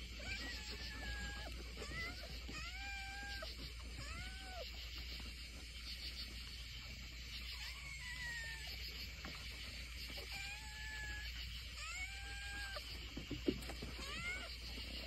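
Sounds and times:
kittens meowing: 0.1 - 4.8, 7.5 - 8.8, 10.1 - 14.6.

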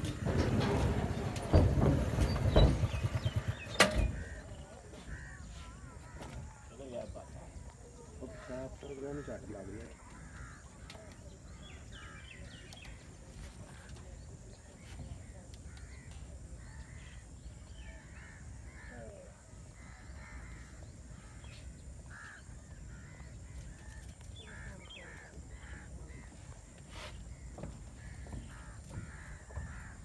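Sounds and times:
low steady rumble: 0.0 - 4.5
crows cawing: 3.4 - 7.3, 8.2 - 11.0, 18.0 - 30.0.

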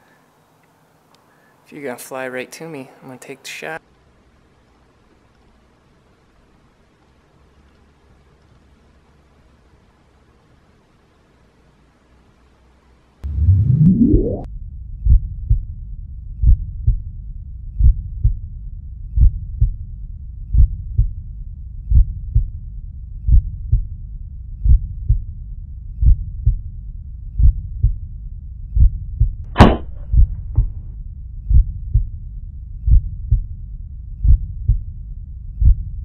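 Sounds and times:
heartbeat thumps: 13.2 - 15.7, 16.4 - 17.1, 17.8 - 18.4, 19.2 - 19.8, 20.5 - 21.2, 21.8 - 22.6, 23.3 - 23.9, 24.6 - 25.3, 26.0 - 26.6, 27.4 - 28.0, 28.7 - 32.2, 32.8 - 33.5, 34.2 - 34.9, 35.6 - 36.0
air gun shot: 29.6 - 30.2.

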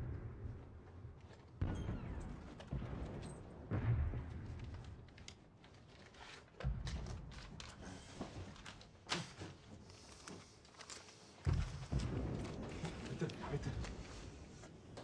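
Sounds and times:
distant artillery booms: 1.6 - 5.0, 11.5 - 14.6.

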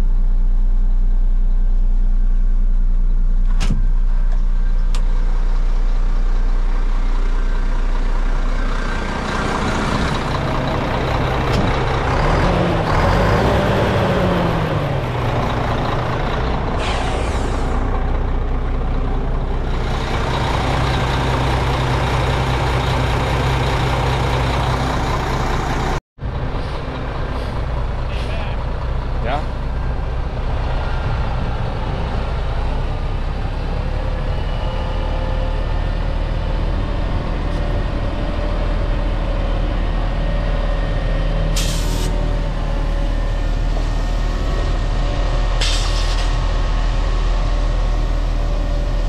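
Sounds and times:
diesel truck engine idling: 0.0 - 34.3
engine revving: 8.6 - 17.9
short air hiss: 41.6 - 42.1.

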